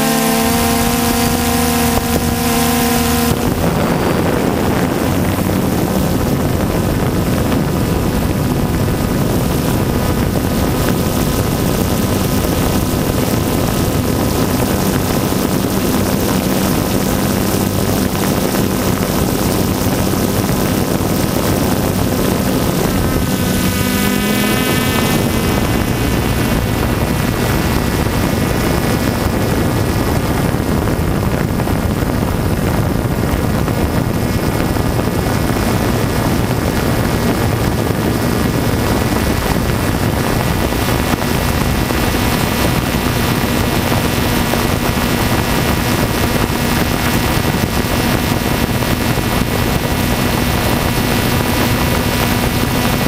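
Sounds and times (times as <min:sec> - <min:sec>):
drone propellers whining: 0:00.0 - 0:53.0
rush of noise: 0:00.0 - 0:53.0.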